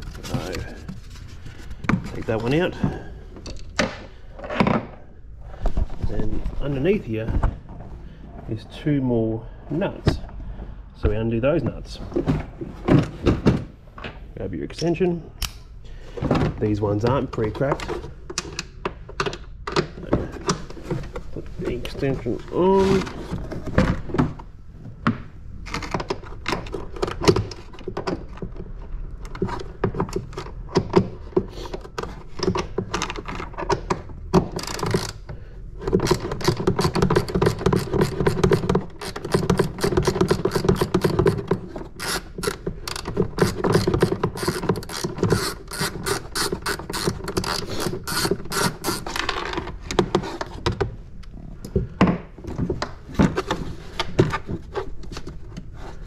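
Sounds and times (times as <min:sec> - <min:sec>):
socket ratchet clicking: 0:42.0 - 0:49.2.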